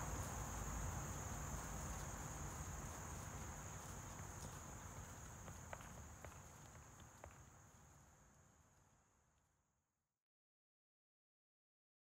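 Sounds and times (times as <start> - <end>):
insects chirring: 0.0 - 8.4.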